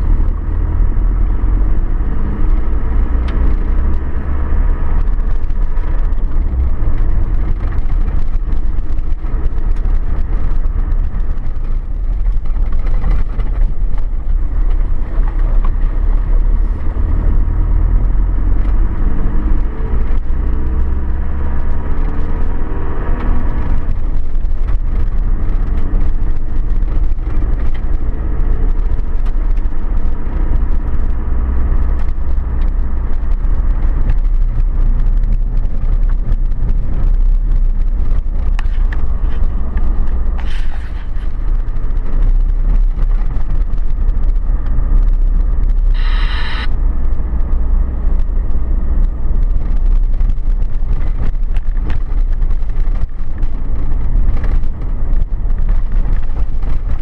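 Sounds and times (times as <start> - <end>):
vehicle rumbling on gravel: 0.0 - 57.0
short high-pitched sound: 45.9 - 46.7.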